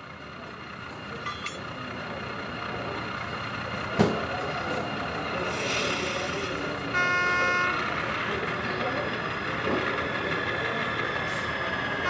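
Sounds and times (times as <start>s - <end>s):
model train rumbling: 0.0s - 12.0s
brief hiss: 5.4s - 6.4s.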